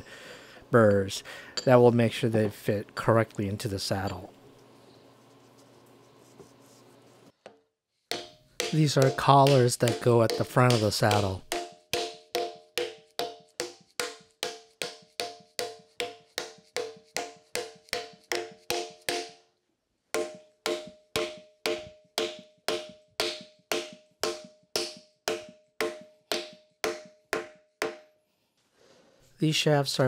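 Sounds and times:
mallet knocking on wooden block: 7.5s - 19.4s, 20.2s - 28.1s.

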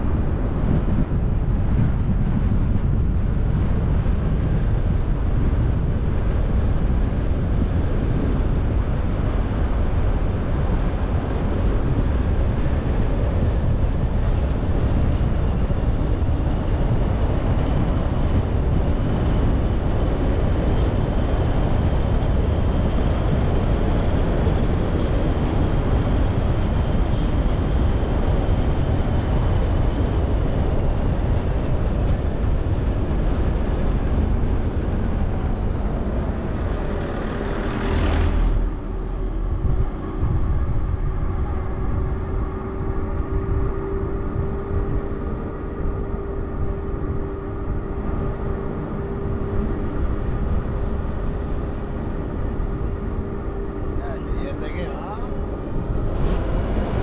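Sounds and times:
tyre and road noise: 0.0s - 57.0s
faint high whine: 38.4s - 57.0s.

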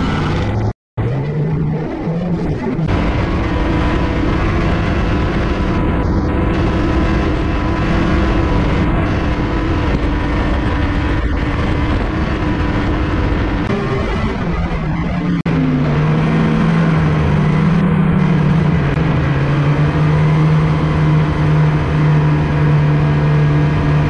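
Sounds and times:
rushing noise: 0.0s - 24.0s
snowmobile engine running: 0.0s - 24.0s.

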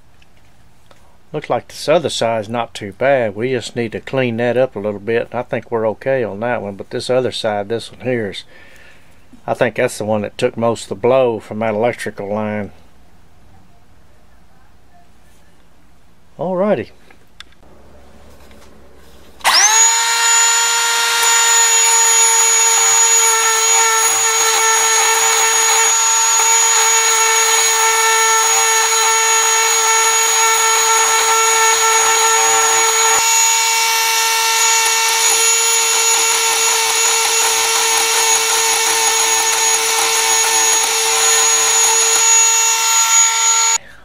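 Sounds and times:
rotary tool grinding whine: 19.4s - 43.8s.

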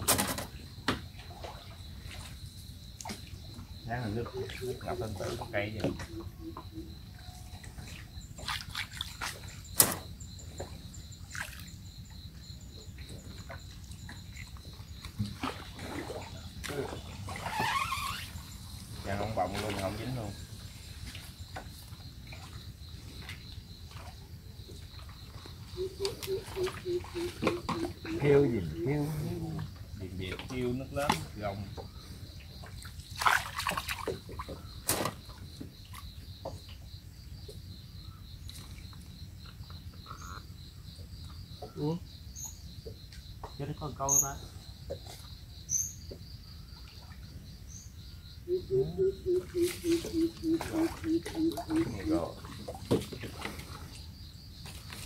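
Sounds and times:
water splashing and sloshing: 0.0s - 43.8s, 44.5s - 48.1s, 49.2s - 55.0s.

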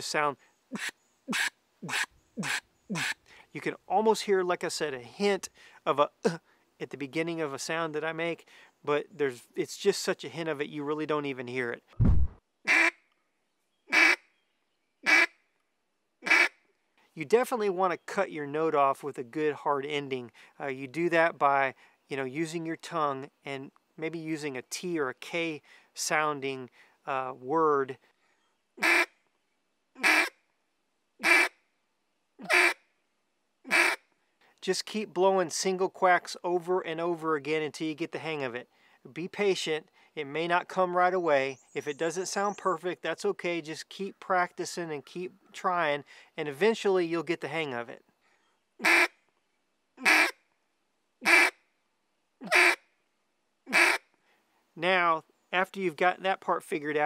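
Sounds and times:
duck call quacks: 0.7s - 3.2s, 12.7s - 13.0s, 13.9s - 14.2s, 15.0s - 15.3s, 16.2s - 16.6s, 28.8s - 29.1s, 30.0s - 30.4s, 31.2s - 31.5s, 32.4s - 32.8s, 33.7s - 34.0s, 48.8s - 49.1s, 50.0s - 50.4s, 51.2s - 51.6s, 52.4s - 52.8s, 53.7s - 54.0s.

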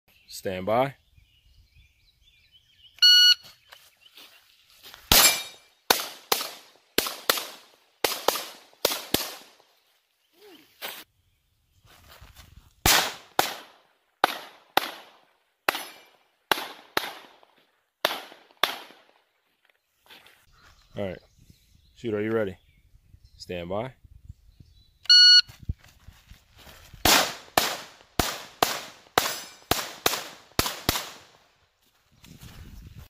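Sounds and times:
shot timer beep: 3.0s - 3.4s, 25.1s - 25.5s
pistol firing rapid shots: 5.1s - 9.5s, 12.9s - 15.9s, 16.5s - 17.4s, 18.0s - 19.1s, 27.1s - 31.3s.

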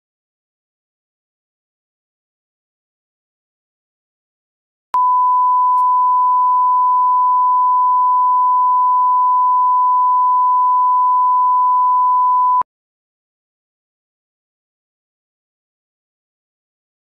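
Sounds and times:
electronic test tone: 5.0s - 12.6s.

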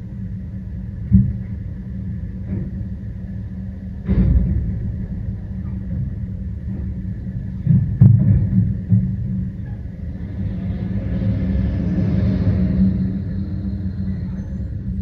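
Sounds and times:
garbage truck idling: 0.0s - 10.5s.

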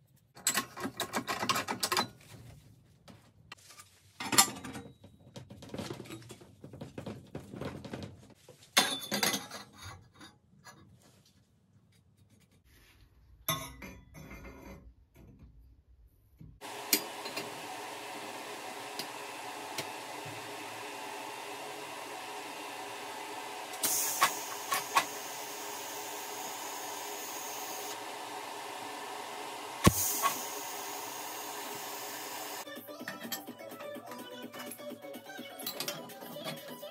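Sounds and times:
steady machine hum: 16.6s - 32.6s
high hiss: 23.7s - 32.6s.

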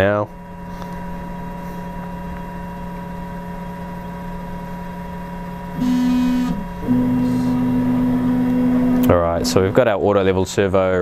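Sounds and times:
printer humming: 0.0s - 10.0s
stepper motors whining: 2.0s - 10.0s.

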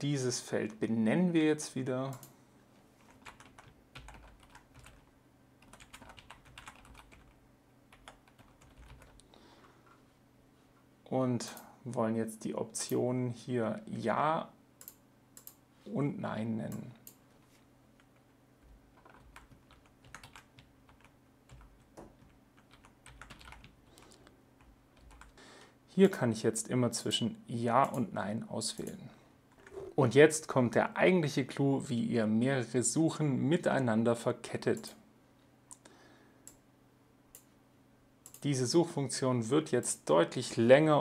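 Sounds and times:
faint keyboard typing: 2.1s - 2.4s, 3.0s - 10.0s, 14.8s - 15.6s, 16.7s - 25.4s, 38.2s - 38.5s.

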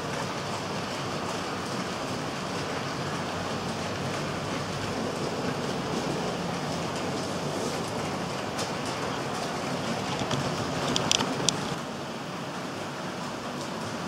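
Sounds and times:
model train wheels rattling on rails: 1.0s - 11.8s
rail joint clicks: 7.9s - 11.8s.

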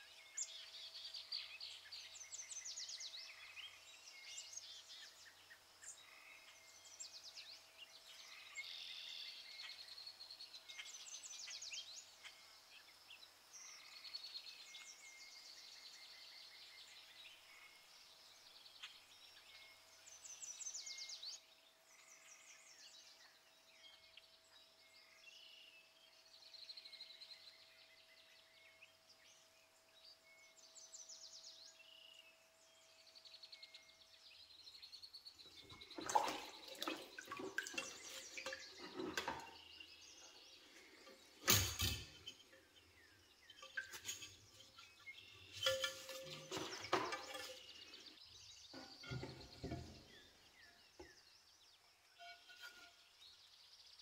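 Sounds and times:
birds chirping: 30.1s - 54.0s
wet clattering and dripping: 35.6s - 39.7s, 43.6s - 44.8s, 45.5s - 48.0s, 48.7s - 50.1s.

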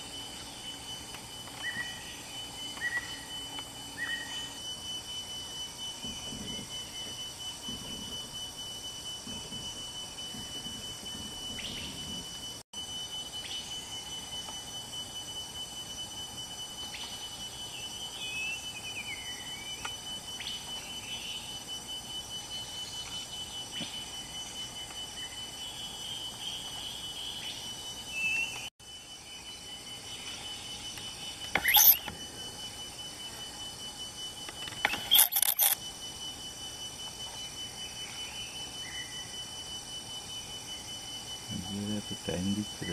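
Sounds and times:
steady high-pitched whine: 0.0s - 42.9s
small birds chirping: 30.0s - 32.1s.

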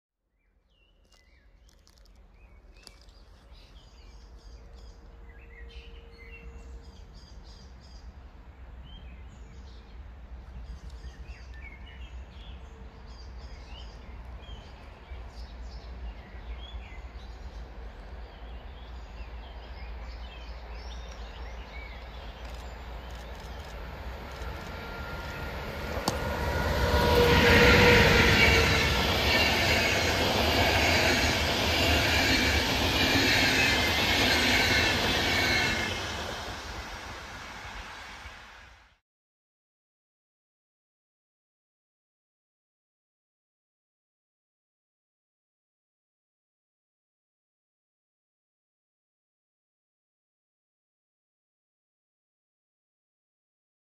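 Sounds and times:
train wheels rushing on rails: 19.3s - 38.9s.

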